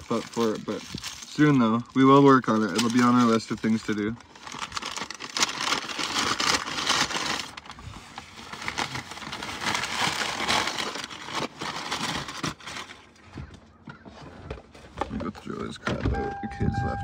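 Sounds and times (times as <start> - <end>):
paper wrappers crumpling: 0.0 - 13.2.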